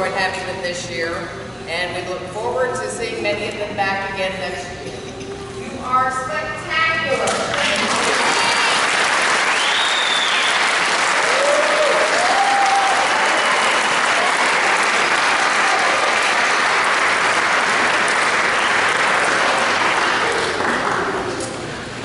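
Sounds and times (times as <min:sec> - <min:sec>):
audience applauding: 0:07.5 - 0:21.4.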